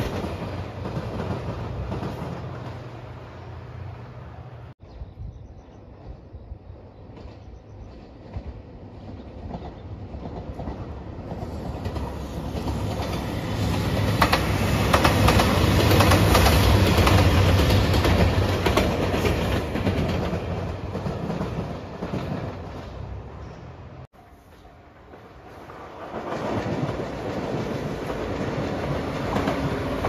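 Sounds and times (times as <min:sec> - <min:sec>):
train wheels clacking over rail joints: 0:07.1 - 0:23.0.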